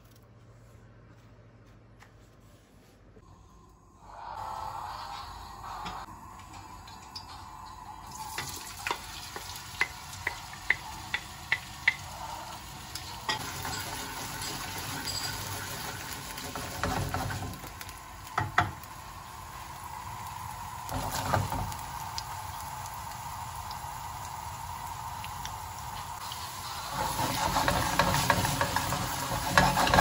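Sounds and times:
potatoes sizzling in oil: 7.1 - 30.0
wooden spoon stirring: 27.0 - 30.0.

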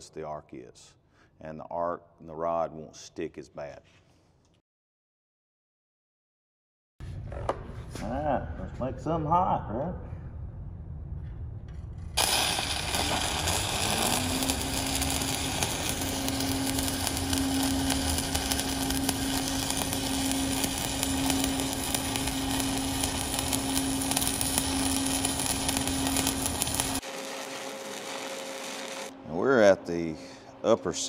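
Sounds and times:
steady hum: 10.2 - 31.0
welding arc crackling: 12.2 - 29.2.

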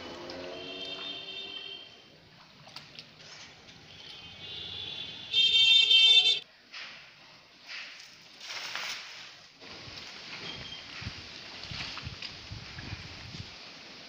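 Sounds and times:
high-pitched horn-like tone: 0.5 - 2.0.

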